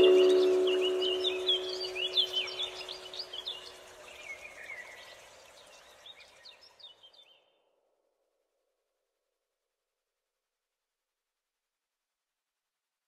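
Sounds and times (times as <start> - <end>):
faint steady tone: 0.0 - 3.2
birds chirping: 0.0 - 3.8.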